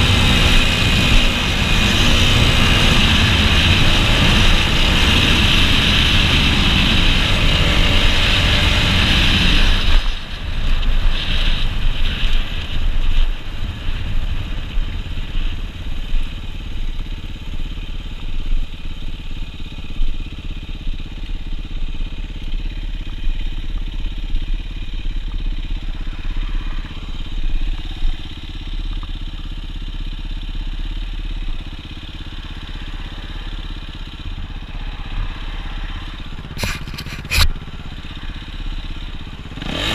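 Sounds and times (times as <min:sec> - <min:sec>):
dirt bike engine revving: 0:00.0 - 0:12.2, 0:39.2 - 0:39.9.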